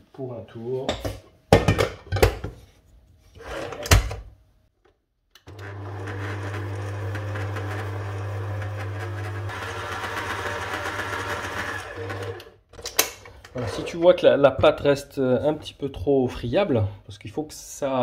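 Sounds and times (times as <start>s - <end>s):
stand mixer motor humming: 5.5s - 12.6s.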